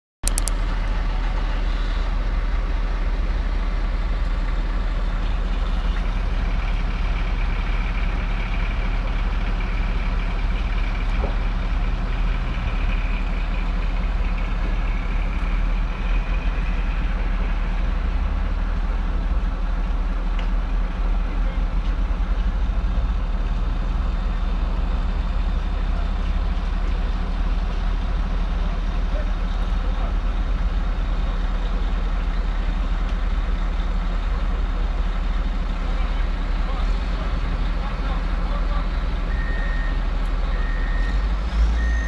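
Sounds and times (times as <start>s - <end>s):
truck engine idling: 0.2s - 42.0s.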